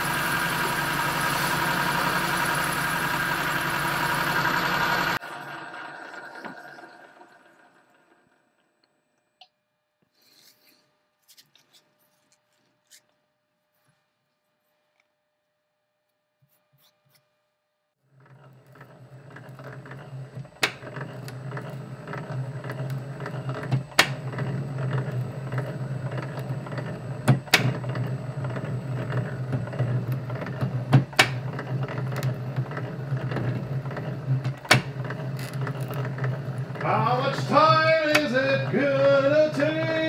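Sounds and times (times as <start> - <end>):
metal lathe cutting with rattle: 0.0 - 8.5, 18.2 - 40.0.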